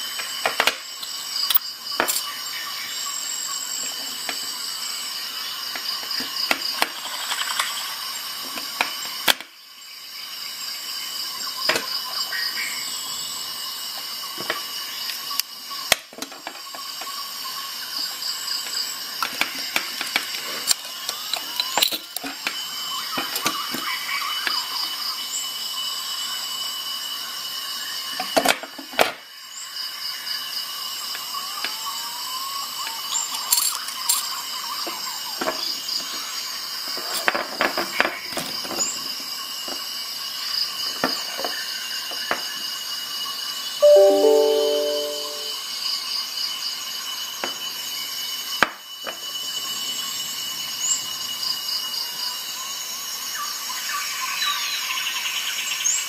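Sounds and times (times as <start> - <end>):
high-pitched hiss: 43.8 - 45.6.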